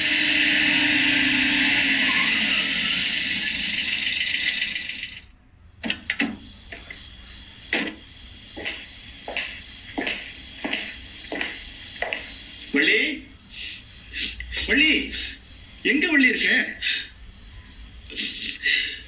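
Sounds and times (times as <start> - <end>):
faint high background tone: 0.1 - 19.0
sharp clicks: 5.8 - 7.0.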